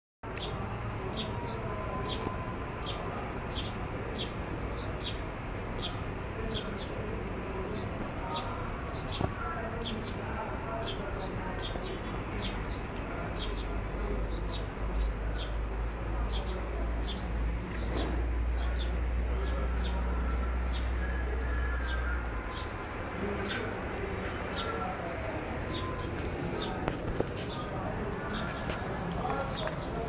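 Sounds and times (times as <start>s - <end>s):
steady background din: 0.4s - 30.0s
bird chirping: 7.7s - 30.0s.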